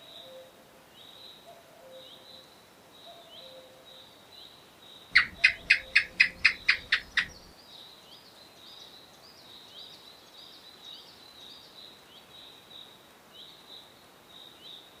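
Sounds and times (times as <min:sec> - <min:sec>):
gecko chirping: 0:05.2 - 0:07.5.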